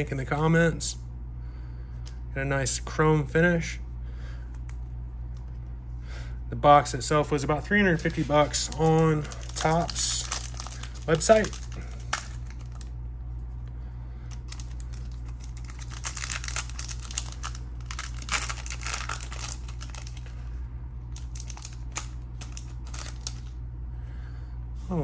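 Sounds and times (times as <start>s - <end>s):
low hum: 0.0s - 25.0s
foil wrapper crinkling: 7.6s - 12.9s, 14.3s - 23.6s.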